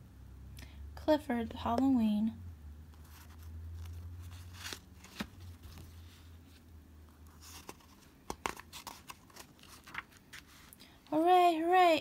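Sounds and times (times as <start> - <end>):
book pages turning: 3.0 - 10.8
paper clicks and taps: 8.3 - 9.1.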